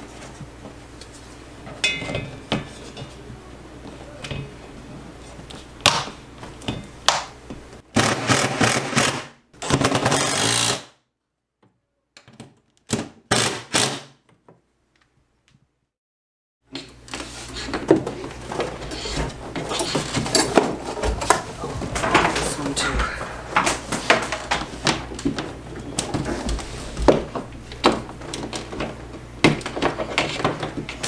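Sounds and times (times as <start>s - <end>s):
cordless drill driving screws: 10.1s - 10.9s.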